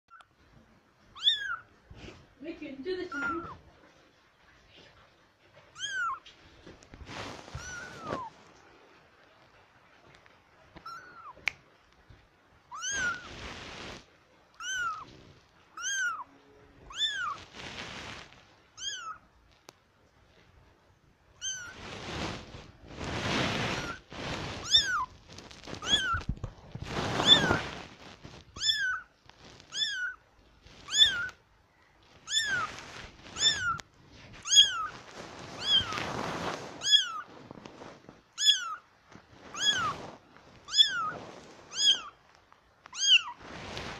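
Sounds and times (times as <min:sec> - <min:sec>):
rustling noise: 0:00.1 - 0:43.9
kitten mewing: 0:07.5 - 0:08.3, 0:10.8 - 0:11.5, 0:12.7 - 0:13.3, 0:14.6 - 0:15.2, 0:15.8 - 0:17.4, 0:23.6 - 0:25.1, 0:25.8 - 0:26.3, 0:27.2 - 0:27.7, 0:29.7 - 0:30.2, 0:30.8 - 0:31.4, 0:32.2 - 0:33.8, 0:34.4 - 0:35.0, 0:39.5 - 0:40.0, 0:40.7 - 0:42.2, 0:42.9 - 0:43.4.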